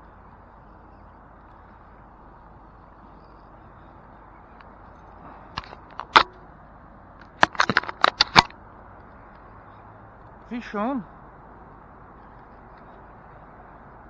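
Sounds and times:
gear clicking and knocking: 0:07.2 - 0:08.5.

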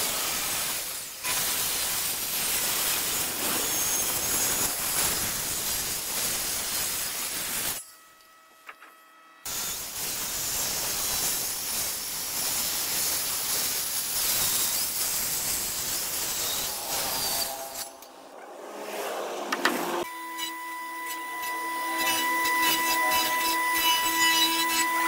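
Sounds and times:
circular saw cutting wood: 0:00.0 - 0:08.2, 0:09.4 - 0:25.0.

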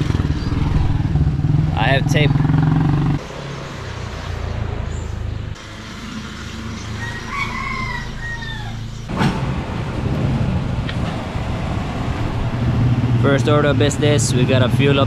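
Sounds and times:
rooster crowing: 0:07.0 - 0:08.9.

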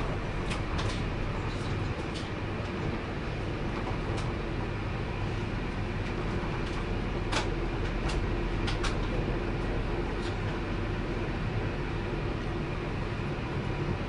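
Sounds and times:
train clicks: 0:00.0 - 0:03.0, 0:03.7 - 0:04.4, 0:06.0 - 0:10.7
train rumble and hum: 0:00.0 - 0:14.0.

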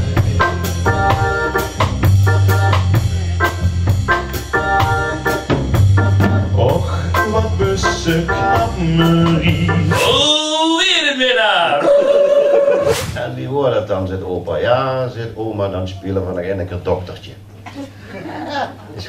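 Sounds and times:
organ keyboard chords: 0:00.0 - 0:10.4
low bass notes: 0:00.0 - 0:10.5
drum kit beat: 0:00.0 - 0:10.8.

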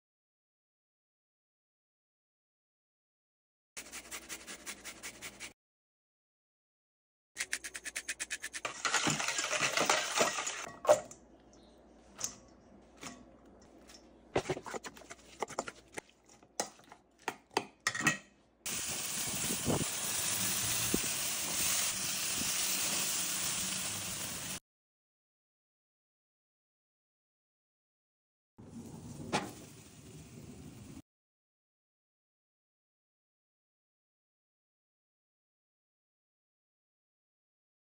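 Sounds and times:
scraping in a metal bowl: 0:07.4 - 0:10.8
chicken sizzling on a grill: 0:18.7 - 0:24.6.

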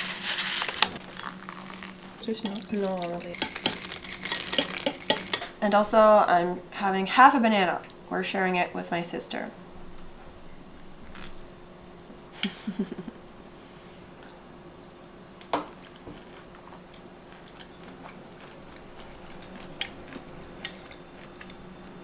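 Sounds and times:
metal spoon clinking ceramic bowl: 0:02.4 - 0:02.7, 0:03.3 - 0:05.5.

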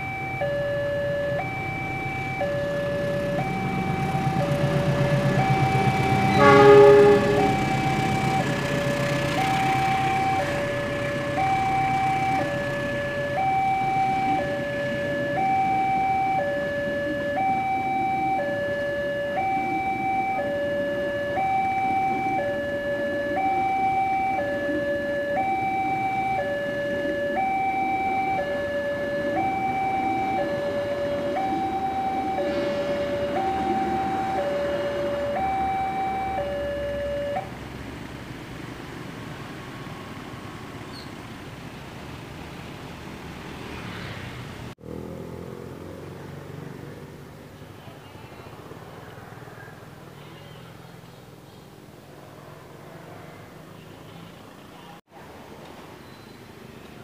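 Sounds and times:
train rumbling: 0:00.0 - 0:23.6, 0:24.3 - 0:43.8
two-tone crossing alarm: 0:00.0 - 0:37.8.

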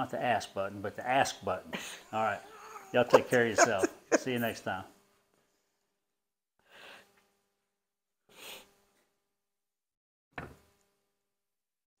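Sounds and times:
faint steady hum: 0:00.0 - 0:06.0.

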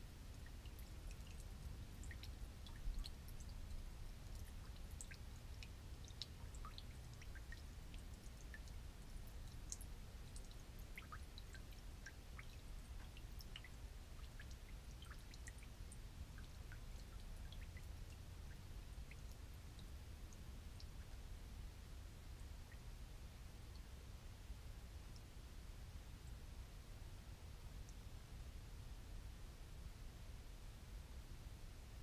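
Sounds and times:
fuel dripping into a pan: 0:00.2 - 0:21.3.

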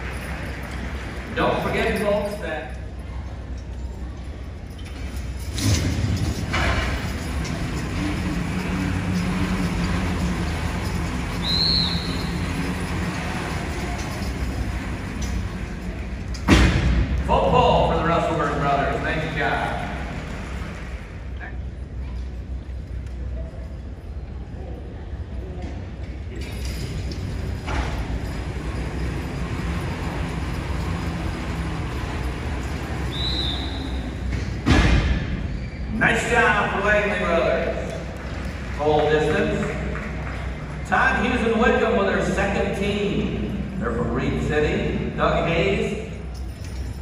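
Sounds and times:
truck engine running: 0:00.0 - 0:23.3, 0:26.8 - 0:35.4
pulling machine rumbling: 0:00.0 - 0:24.1, 0:25.8 - 0:47.0
high squeal: 0:08.6 - 0:13.9, 0:32.6 - 0:34.3, 0:35.4 - 0:36.2
short high squeal: 0:11.3 - 0:12.5, 0:33.1 - 0:34.2.

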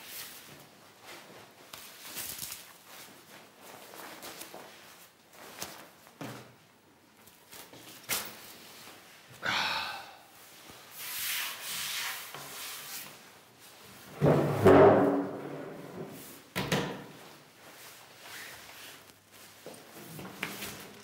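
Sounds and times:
clothing and paper rustling: 0:00.0 - 0:09.3, 0:17.1 - 0:21.0.

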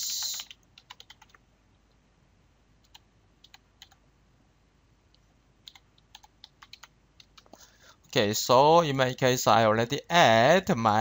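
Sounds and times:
computer keyboard keystrokes: 0:00.0 - 0:01.4, 0:02.8 - 0:04.0, 0:05.6 - 0:07.6.

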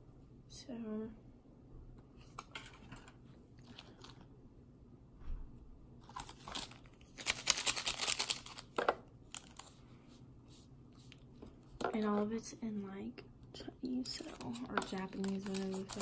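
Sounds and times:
foil and plastic packets crinkling: 0:06.0 - 0:09.8, 0:14.0 - 0:16.0.

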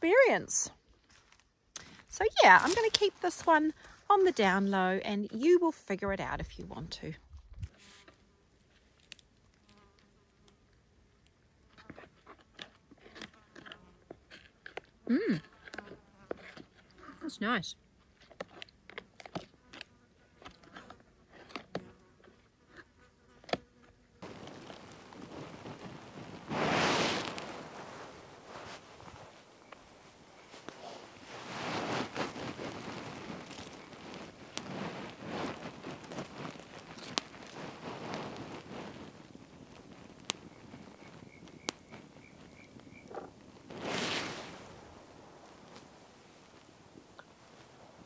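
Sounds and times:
sticks scraping and rustling: 0:01.0 - 0:04.6, 0:24.2 - 0:41.1, 0:43.1 - 0:47.8
fire popping: 0:01.2 - 0:07.9, 0:24.2 - 0:48.0
campfire crackling: 0:06.6 - 0:20.6, 0:24.2 - 0:48.0
faint insect buzz: 0:19.6 - 0:48.0
foil pouch crinkling: 0:24.2 - 0:41.0
steady hiss: 0:24.2 - 0:48.0.

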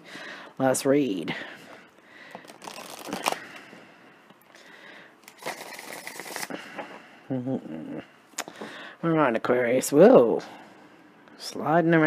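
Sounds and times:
cards rustling: 0:02.3 - 0:03.6, 0:05.2 - 0:06.5.

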